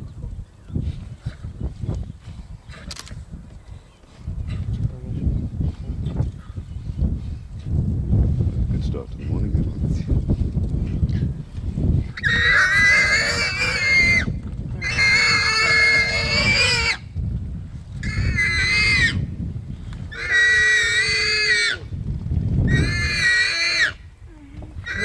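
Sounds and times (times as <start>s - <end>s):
warthog squealing: 12.2s - 17.0s, 18.0s - 19.2s, 20.1s - 21.9s, 22.7s - 24.0s.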